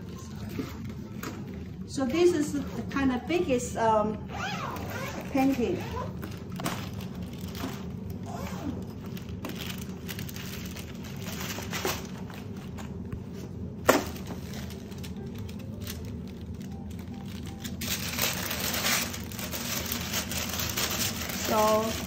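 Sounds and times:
paper rustling and crinkling: 0:05.4 - 0:22.0.

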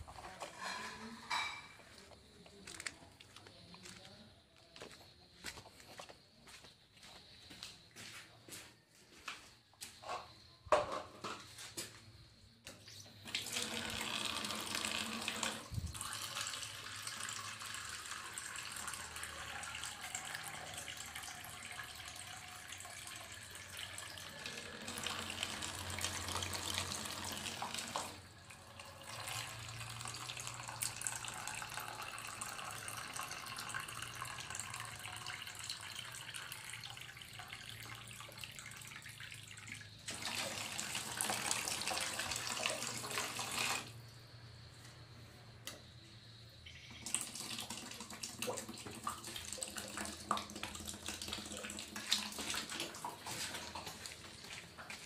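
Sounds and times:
tap water splashing into container: 0:13.2 - 0:28.2, 0:28.8 - 0:43.9, 0:47.0 - 0:55.0.

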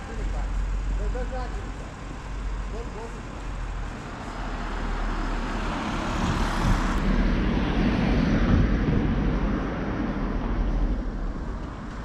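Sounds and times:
vehicle passing by: 0:04.0 - 0:11.2.

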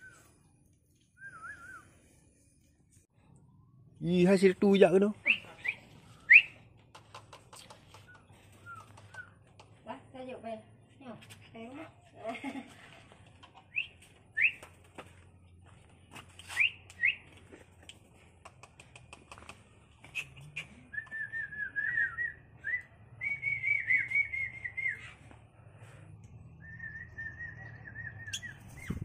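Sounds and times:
person whistling: 0:01.2 - 0:02.0.

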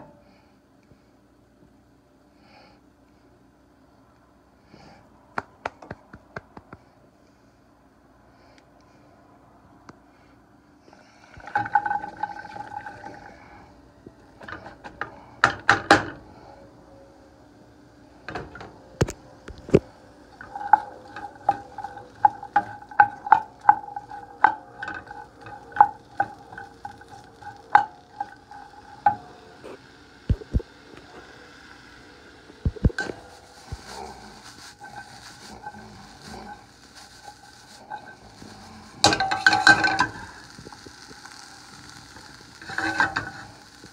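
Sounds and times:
faint sizzle: 0:00.0 - 0:05.2, 0:06.8 - 0:43.9
spatula scraping frying pan: 0:19.7 - 0:31.6, 0:32.5 - 0:43.9.

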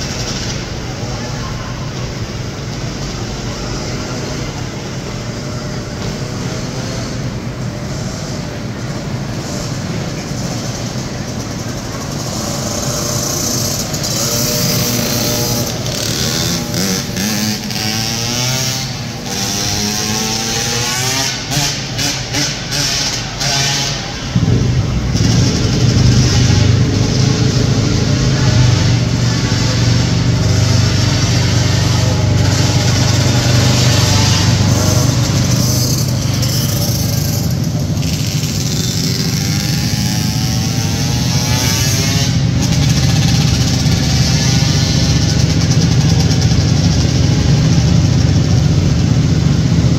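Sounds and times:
motorcycle engines revving: 0:00.0 - 0:49.9
steady low hum: 0:24.0 - 0:49.9.

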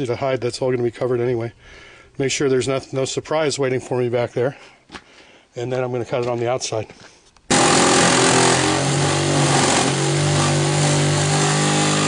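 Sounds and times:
power tool cutting metal: 0:07.5 - 0:12.0.

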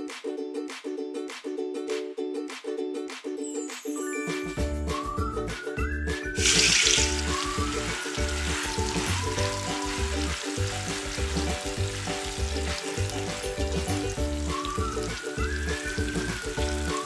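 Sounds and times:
background music with steady beat: 0:00.0 - 0:17.0
tofu sizzling in hot oil: 0:06.4 - 0:17.0.

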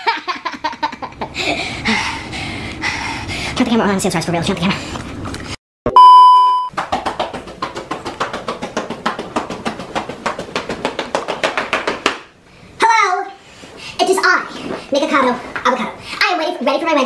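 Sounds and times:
test tone beep: 0:05.9 - 0:06.7.

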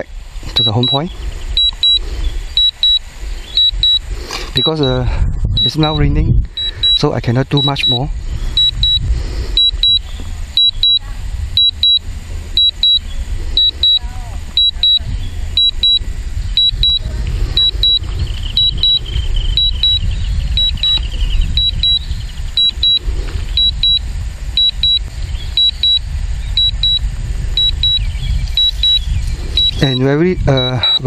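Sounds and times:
wind on microphone: 0:00.0 - 0:31.0
short high beeps: 0:00.6 - 0:01.0, 0:01.6 - 0:02.0, 0:02.6 - 0:04.0, 0:04.6 - 0:05.0, 0:05.6 - 0:08.0, 0:08.6 - 0:09.0, 0:09.6 - 0:11.0, 0:11.6 - 0:12.0, 0:12.6 - 0:13.0, 0:13.6 - 0:14.0, 0:14.6 - 0:15.0, 0:15.6 - 0:16.0, 0:16.6 - 0:18.0, 0:18.6 - 0:19.0, 0:19.6 - 0:20.0, 0:20.6 - 0:21.0, 0:21.6 - 0:22.0, 0:22.6 - 0:23.0, 0:23.6 - 0:24.0, 0:24.6 - 0:25.0, 0:25.6 - 0:26.0, 0:26.6 - 0:27.0, 0:27.6 - 0:28.0, 0:28.6 - 0:31.0.

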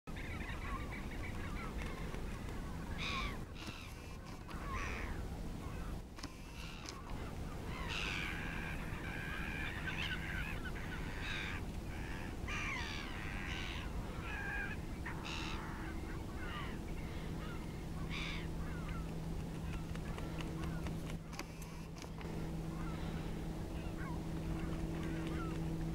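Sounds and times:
low background rumble: 0:00.1 - 0:25.9
steady low hum: 0:00.1 - 0:25.9
waterbirds calling: 0:00.1 - 0:25.9.

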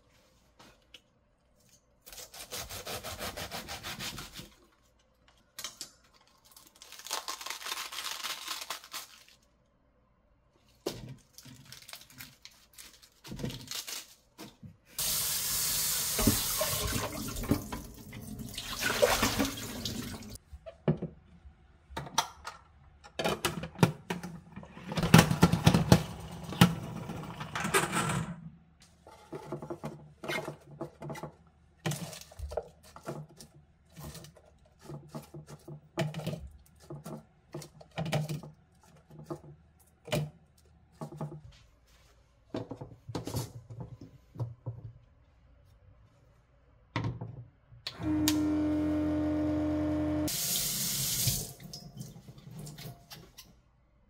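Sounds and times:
lettuce leaves rustling: 0:06.3 - 0:09.5, 0:11.2 - 0:14.3
tap water running: 0:15.0 - 0:20.4, 0:48.1 - 0:52.9.

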